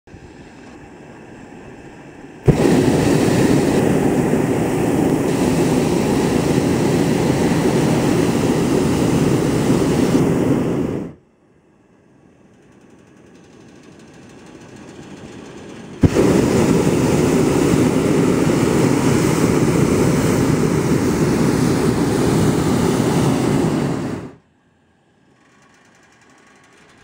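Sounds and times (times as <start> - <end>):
propane burner blast: 2.4 - 11.2, 15.9 - 24.4.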